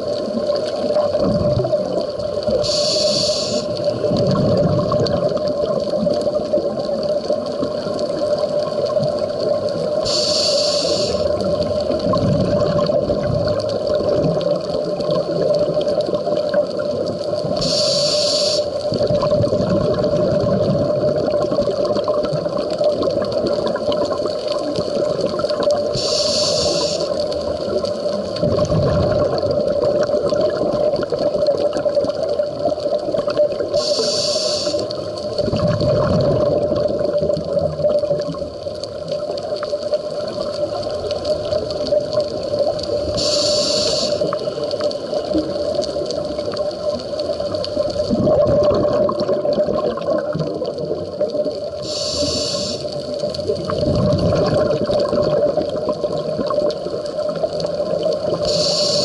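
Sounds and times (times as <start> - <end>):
exhaled bubbles rumbling: 0.0 - 59.0
steady hum: 2.4 - 4.0, 10.0 - 11.5, 25.9 - 27.2, 43.1 - 44.5, 51.8 - 53.0, 58.4 - 59.0
regulator hissing inhales: 2.6 - 3.8, 10.0 - 11.3, 17.6 - 18.8, 26.0 - 27.2, 33.8 - 35.0, 43.2 - 44.4, 51.8 - 53.0, 58.4 - 59.0.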